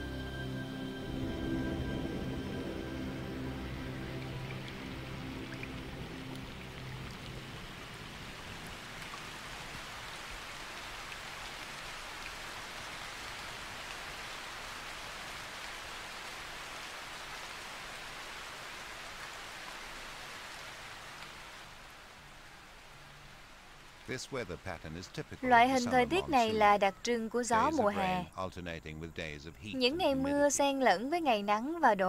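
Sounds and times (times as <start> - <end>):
background music: 0.0 - 7.8, 25.4 - 28.4, 29.7 - 32.0
rain falling on marsh water: 1.3 - 26.7.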